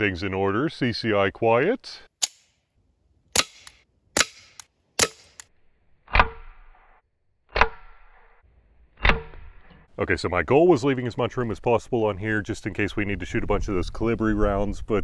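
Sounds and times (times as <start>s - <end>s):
suppressed pistol shots: 3.3s - 5.5s.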